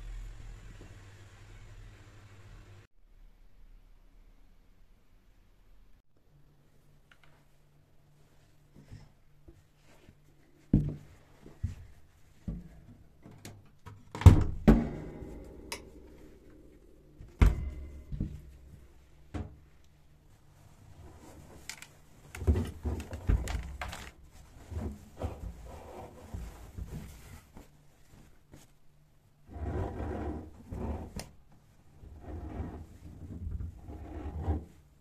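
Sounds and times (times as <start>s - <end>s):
washing machine door knocks: 14.2s - 16.6s, 17.2s - 18.7s.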